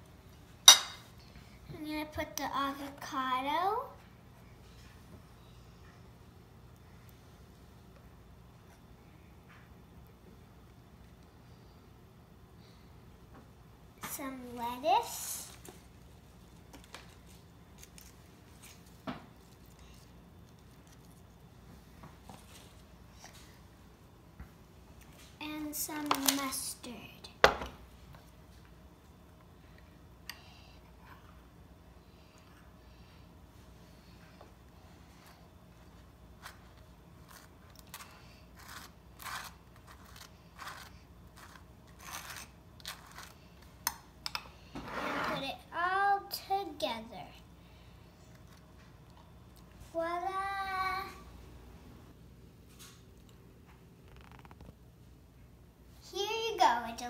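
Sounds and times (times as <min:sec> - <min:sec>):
knife scraping on bread: 0:37.3 - 0:43.4.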